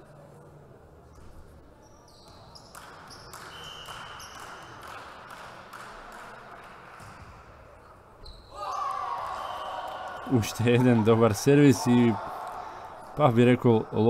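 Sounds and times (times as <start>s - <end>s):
voices and crowd noise: 6.0s - 14.0s.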